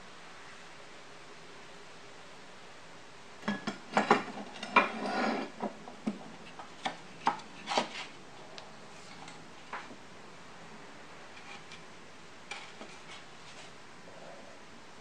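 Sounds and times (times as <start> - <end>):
wood scraping: 4.2 - 8.2, 11.3 - 11.8, 12.5 - 13.8.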